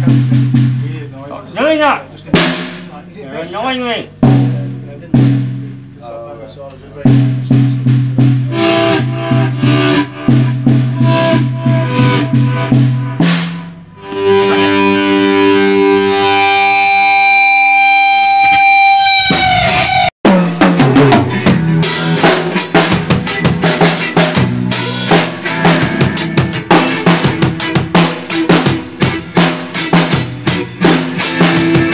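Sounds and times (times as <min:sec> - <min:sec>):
drum kit playing: 0:00.0 - 0:31.9.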